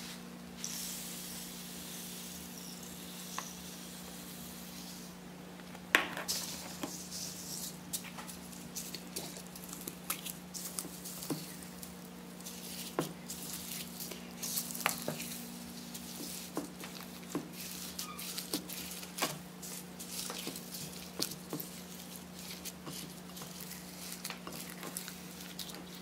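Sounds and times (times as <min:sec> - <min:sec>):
steady low hum: 0:00.0 - 0:26.0
foam beads crackling in slime: 0:06.3 - 0:26.0.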